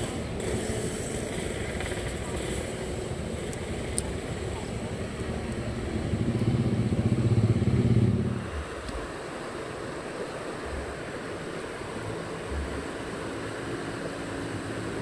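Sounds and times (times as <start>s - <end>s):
vehicle engine running: 0.0s - 8.6s
river water rushing: 0.0s - 15.0s.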